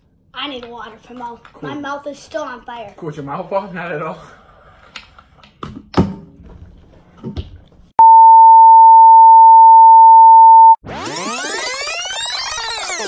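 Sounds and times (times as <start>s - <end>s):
steady test beep: 8.0s - 10.8s.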